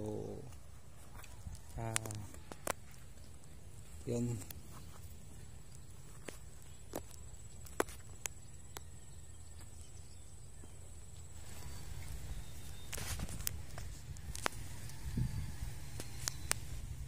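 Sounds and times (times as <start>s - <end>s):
wind on microphone: 11.4s - 17.0s
sharp clicks: 15.9s - 16.8s.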